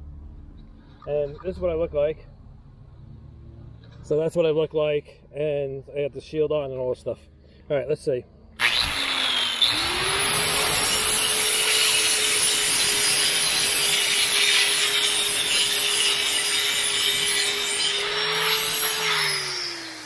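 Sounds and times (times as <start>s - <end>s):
angle grinder grinding steel: 8.6s - 20.0s.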